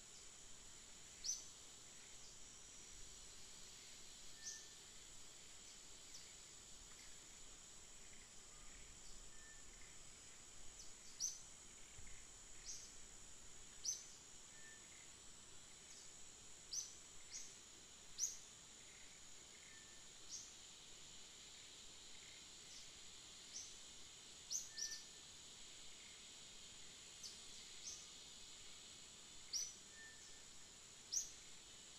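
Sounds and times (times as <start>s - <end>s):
high-pitched insect drone: 0.0s - 31.9s.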